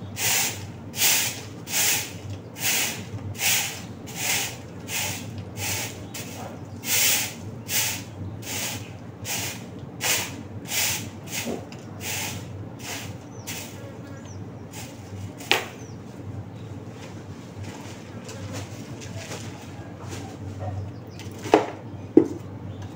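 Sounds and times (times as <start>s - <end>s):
broom sweeping: 0.2s - 13.8s, 14.7s - 15.5s.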